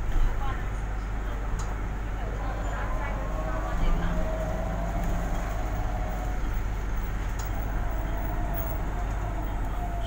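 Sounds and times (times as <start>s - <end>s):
bus interior road rumble: 0.0s - 10.0s
faint drivetrain whine: 0.0s - 10.0s.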